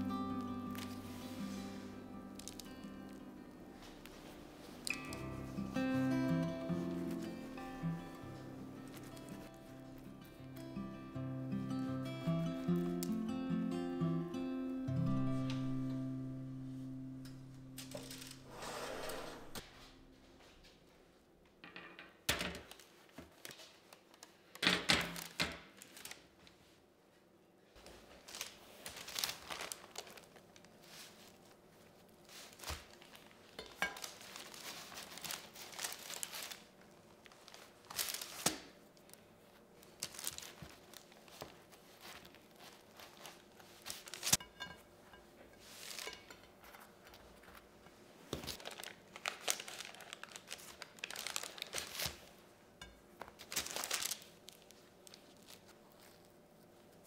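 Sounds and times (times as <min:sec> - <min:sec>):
baking paper crinkling: 0:00.3 - 0:06.1, 0:06.7 - 0:10.3, 0:16.5 - 0:19.7, 0:22.6 - 0:26.8, 0:27.8 - 0:44.7, 0:45.6 - 0:52.5, 0:53.2 - 0:57.0.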